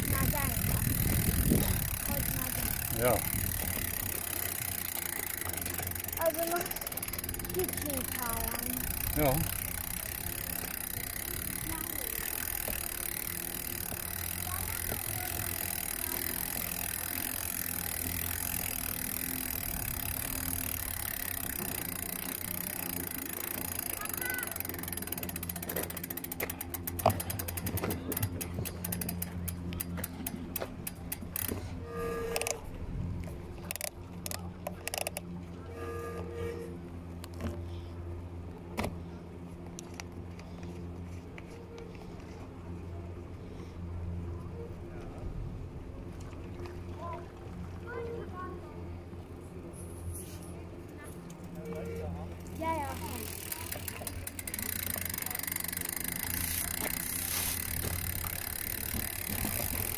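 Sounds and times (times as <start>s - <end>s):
sled rattling on track: 0.0s - 31.6s, 51.0s - 59.9s
coaster sled mechanical drone: 0.0s - 59.9s
low machine hum: 0.0s - 59.9s.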